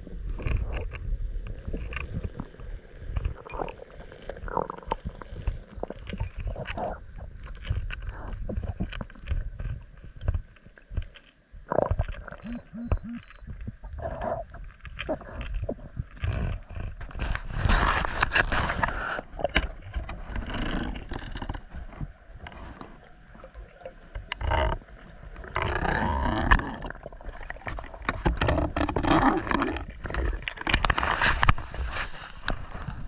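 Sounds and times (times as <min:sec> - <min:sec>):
underwater water rushing: 0:11.7 - 0:33.0.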